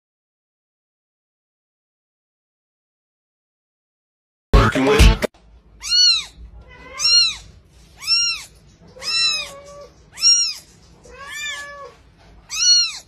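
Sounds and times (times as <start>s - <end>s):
kitten mewing: 5.8s - 13.0s.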